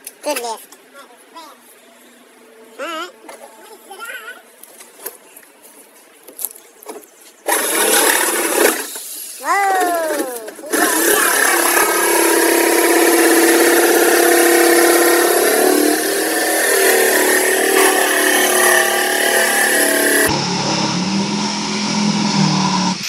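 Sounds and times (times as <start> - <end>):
reciprocating saw cutting: 7.5 - 9.3, 10.6 - 23.0.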